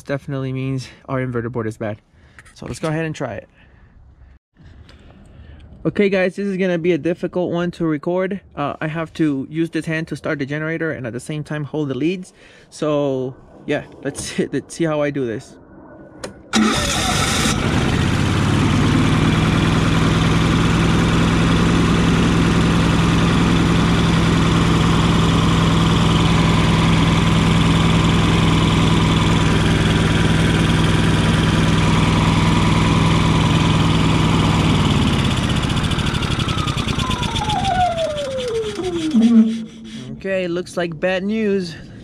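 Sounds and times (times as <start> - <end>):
generator engine running: 16.6 - 40.2.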